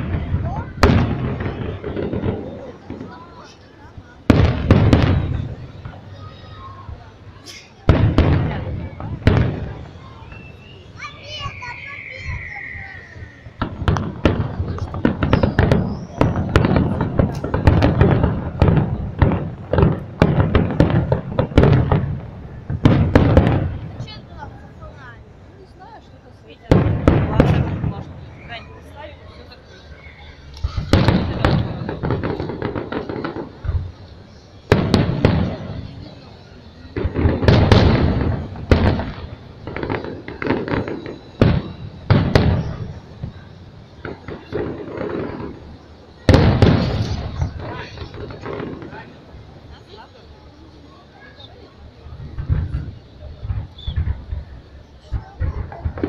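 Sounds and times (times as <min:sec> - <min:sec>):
fireworks bursting: 0:00.0 - 0:56.0
small quick firework pops: 0:13.6 - 0:22.1, 0:30.5 - 0:34.0, 0:36.9 - 0:45.6, 0:46.3 - 0:49.2, 0:52.2 - 0:56.0.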